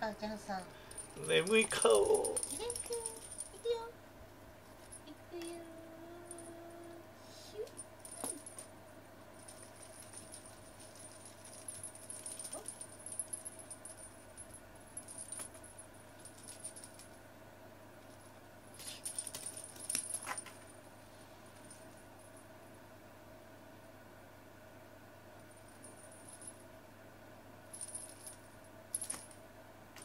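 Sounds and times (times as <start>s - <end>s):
small bell jingling: 0.8s - 3.9s, 6.2s - 6.8s, 7.6s - 8.7s, 9.4s - 17.1s, 27.7s - 29.4s.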